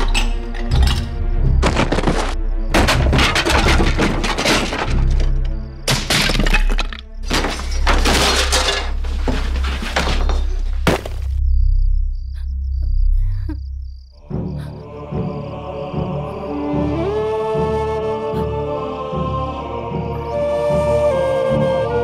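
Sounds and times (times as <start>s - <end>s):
pots smashing: 1.6s - 11.2s.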